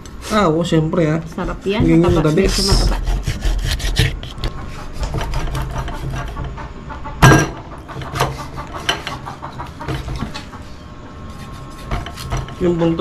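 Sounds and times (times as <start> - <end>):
knife cutting on cutting board: 1.4 - 6.4, 11.2 - 12.7.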